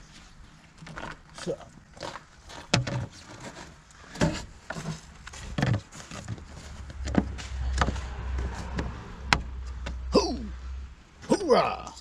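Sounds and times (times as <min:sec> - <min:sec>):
low rumble: 0:06.4 - 0:11.2.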